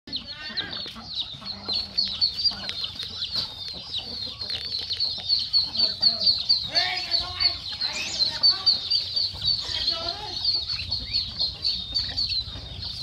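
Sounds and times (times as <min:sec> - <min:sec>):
chickens clucking: 0:00.1 - 0:13.0
chicks peeping: 0:00.1 - 0:13.0.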